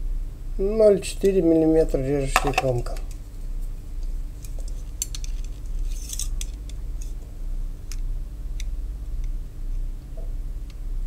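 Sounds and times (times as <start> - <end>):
steady low hum: 0.0 - 11.0
metal caliper clicking and scraping: 4.4 - 7.2.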